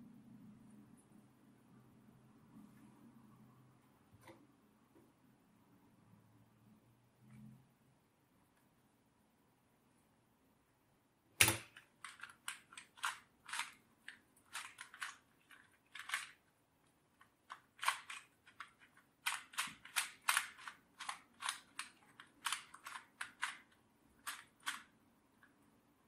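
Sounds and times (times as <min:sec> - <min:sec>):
puzzle cube clicking: 0:11.4 - 0:16.4, 0:17.2 - 0:24.9.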